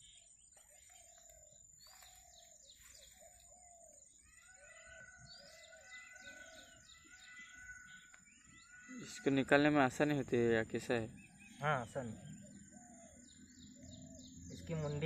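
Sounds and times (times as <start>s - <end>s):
higher bird chirps: 0.0s - 15.0s
short low bird calls: 0.0s - 15.0s.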